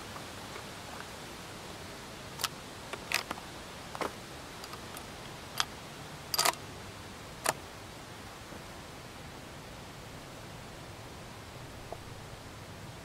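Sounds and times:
rifle bolt metallic clicks: 6.3s - 6.6s.

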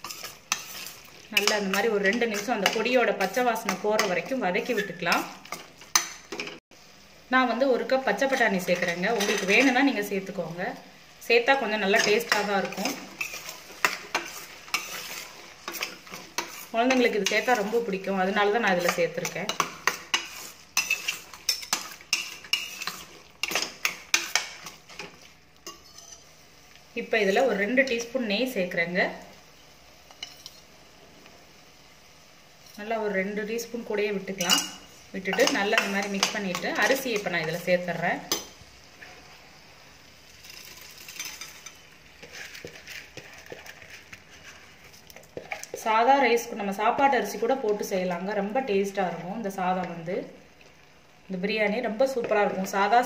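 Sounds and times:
spatula scraping metal pot: 0.0s - 6.2s, 12.0s - 17.9s, 18.7s - 26.3s, 40.6s - 45.8s
wet rice rustling into pot: 40.3s - 45.8s.

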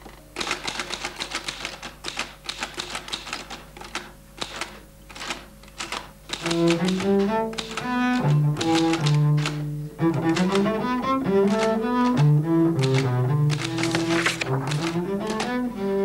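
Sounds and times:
typewriter keys clicking: 0.0s - 9.6s, 10.2s - 15.6s
low bowed strings: 6.4s - 16.0s.

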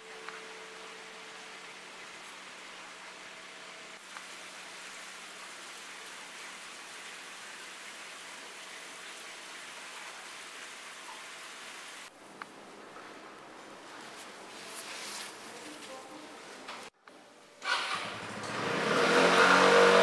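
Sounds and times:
running water rushing: 0.0s - 12.2s.

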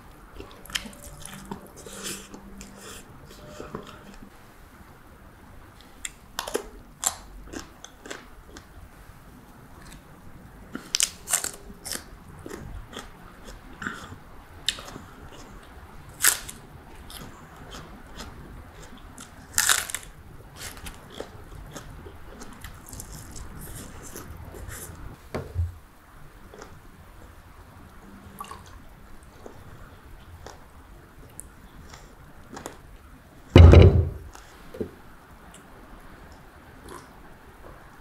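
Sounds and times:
chewing crisp food: 6.0s - 8.8s, 10.7s - 25.0s, 28.3s - 32.9s, 36.8s - 37.2s.

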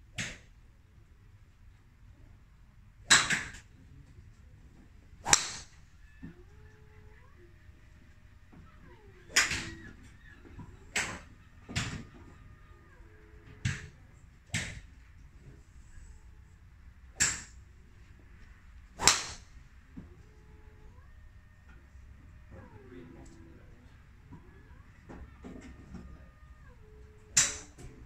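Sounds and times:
golf clubs striking balls: 3.1s - 3.7s, 5.2s - 12.4s, 13.3s - 15.6s, 17.1s - 17.6s, 18.4s - 20.2s, 27.3s - 28.0s.

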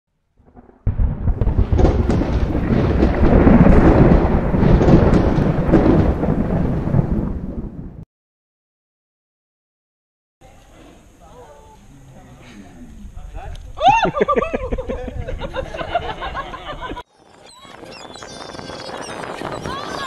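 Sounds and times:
heavy thunder rumble: 0.4s - 8.0s
thunder cracks: 0.4s - 8.0s.

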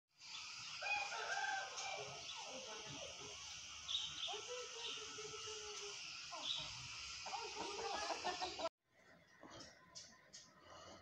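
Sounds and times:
steady high hiss: 0.2s - 8.7s
chickens clucking and calling: 0.3s - 2.9s, 5.6s - 8.7s.

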